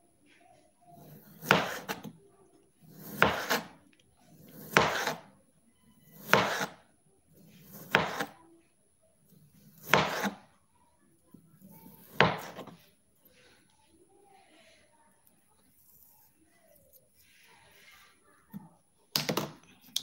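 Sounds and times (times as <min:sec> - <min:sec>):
knife slicing sausage: 0:01.0 - 0:02.1, 0:02.8 - 0:05.3, 0:06.0 - 0:06.8, 0:07.4 - 0:08.4, 0:09.6 - 0:10.4, 0:11.6 - 0:12.8.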